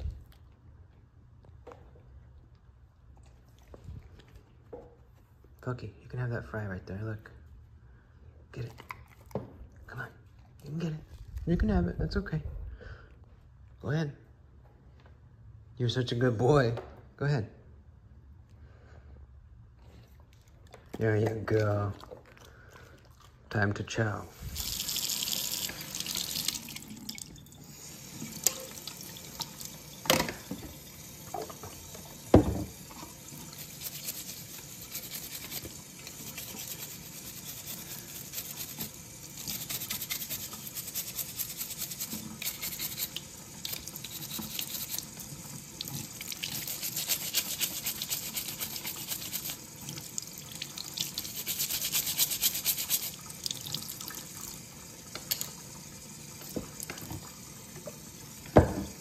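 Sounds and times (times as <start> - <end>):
tap running into sink: 30.0 - 33.1, 56.4 - 59.0
brush scrubbing: 33.4 - 45.3, 45.9 - 49.7, 51.0 - 53.2.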